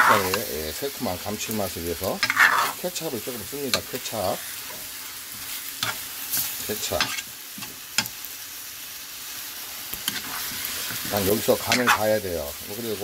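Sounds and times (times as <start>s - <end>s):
spatula scraping a pan: 0.0s - 0.6s, 2.1s - 8.2s, 9.8s - 12.2s
food sizzling in a frying pan: 0.0s - 13.0s.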